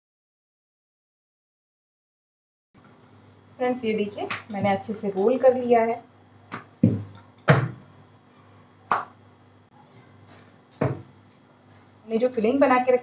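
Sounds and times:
rolling pin knocking on stone: 0:10.8 - 0:11.1.

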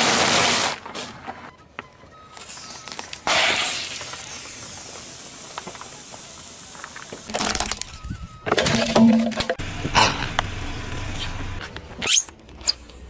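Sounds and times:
gas hissing: 0:09.6 - 0:11.6.

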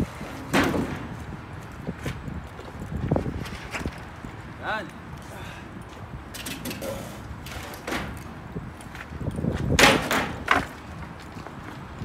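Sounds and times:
heavy thuds of pallets: 0:00.2 - 0:01.3, 0:06.5 - 0:08.3, 0:09.5 - 0:10.8.

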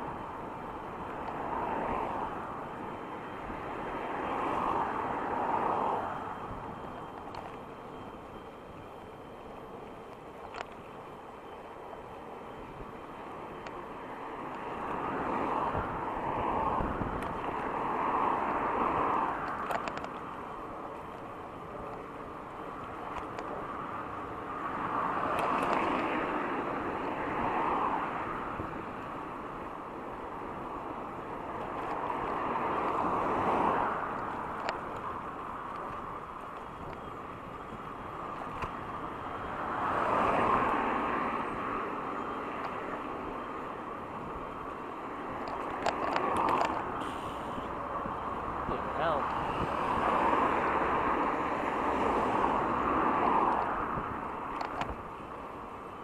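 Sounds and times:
road noise: 0:00.0 - 0:56.0
vehicles passing: 0:00.0 - 0:56.0.

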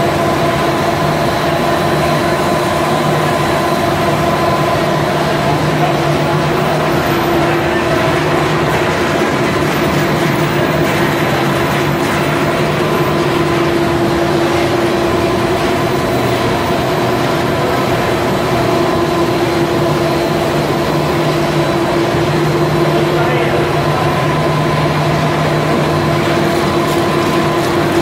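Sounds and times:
production line machinery humming: 0:00.0 - 0:28.0.

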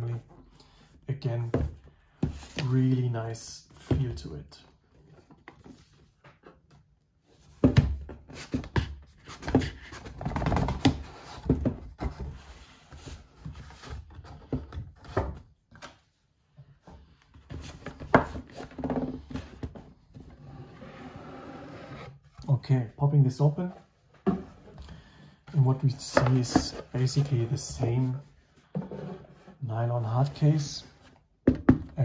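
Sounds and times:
cardboard box scraping and sliding: 0:20.4 - 0:22.2.

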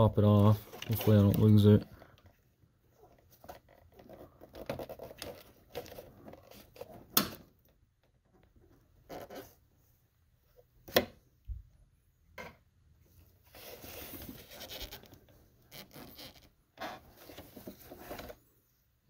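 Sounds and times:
scraping and rubbing: 0:13.5 - 0:18.5.

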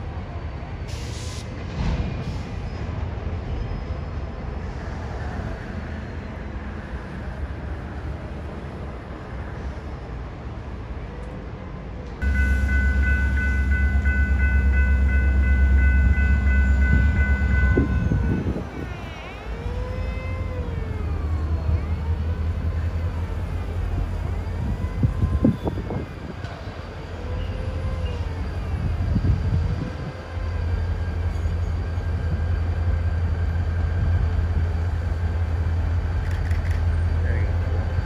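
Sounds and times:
locomotive horn blast: 0:12.2 - 0:18.8
diesel engine rumbling: 0:12.2 - 0:38.0
train wheel clicks: 0:36.2 - 0:36.9.

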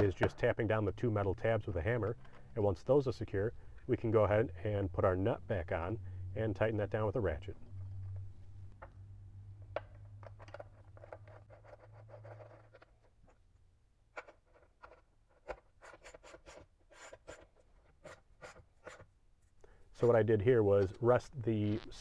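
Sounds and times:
nut scraping and clicking on metal: 0:09.7 - 0:13.4, 0:14.1 - 0:19.1.

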